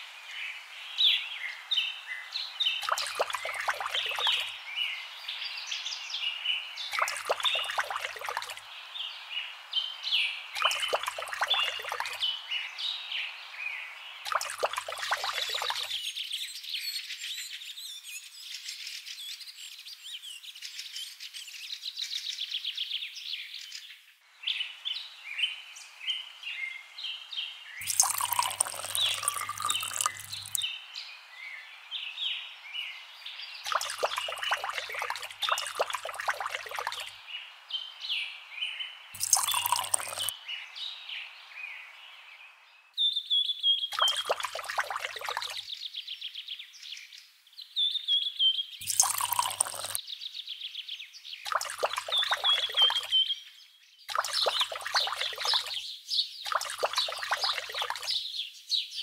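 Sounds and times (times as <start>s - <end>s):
birds chirping and trilling: 0.0s - 59.0s.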